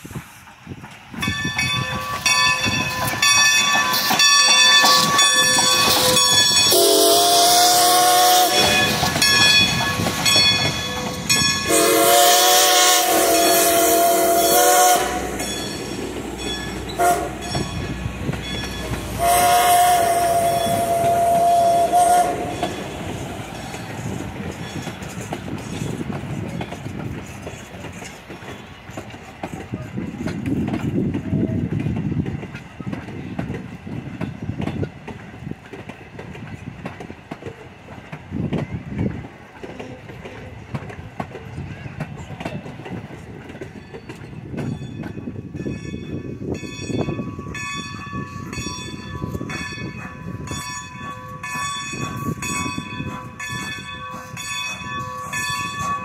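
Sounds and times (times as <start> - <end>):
train wheels clicking over rail joints: 0.0 - 56.0
steam whistle blasts: 5.8 - 9.0, 11.6 - 15.4, 16.9 - 17.5, 19.1 - 22.8.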